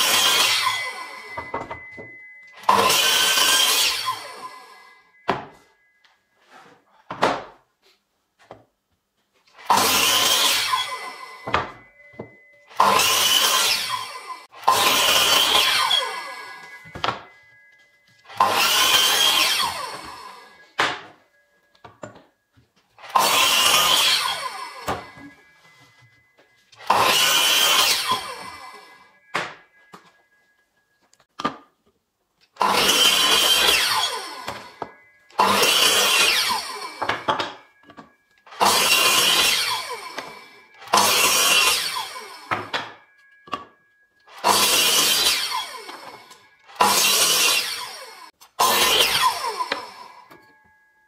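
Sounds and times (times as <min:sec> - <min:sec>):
mitre saw cutting wood: 0:00.0 - 0:01.5, 0:02.6 - 0:04.7, 0:09.6 - 0:17.2, 0:18.3 - 0:21.0, 0:23.0 - 0:25.3, 0:26.8 - 0:29.5, 0:32.6 - 0:37.6, 0:38.5 - 0:43.7, 0:44.3 - 0:50.2.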